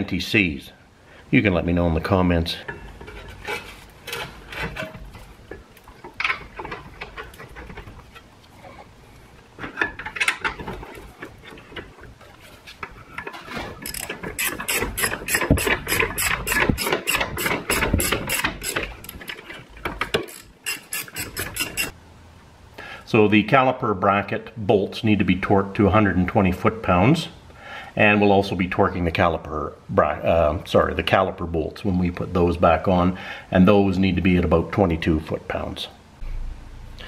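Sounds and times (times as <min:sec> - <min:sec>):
metal knocks and scrapes: 0:02.6 - 0:08.9, 0:09.6 - 0:22.0
socket ratchet clicking: 0:20.1 - 0:21.9.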